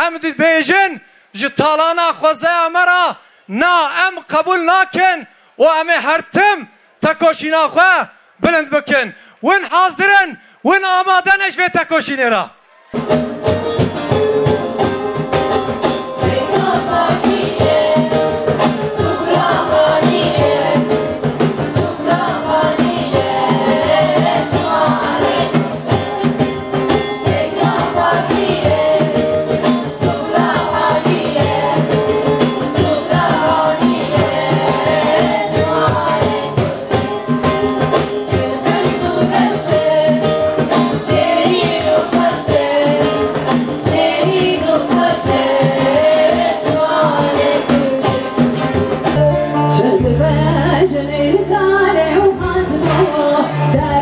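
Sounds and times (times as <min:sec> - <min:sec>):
children singing together: 0:12.9 - 0:49.1
amplified band with drums: 0:12.9 - 0:54.0.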